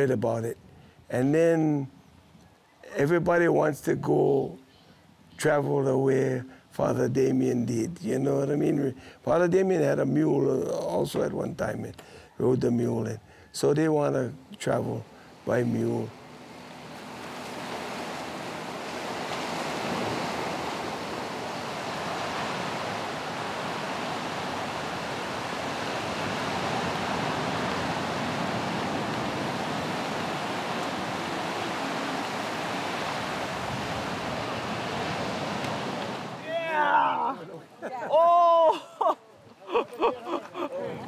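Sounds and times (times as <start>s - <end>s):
ocean surf breaking: 14.7s - 37.6s.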